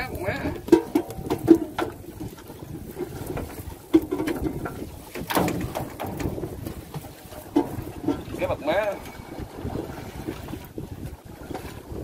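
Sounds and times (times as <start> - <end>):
water lapping against boat: 0.0 - 12.0
sharp knock on boat: 4.0 - 8.3.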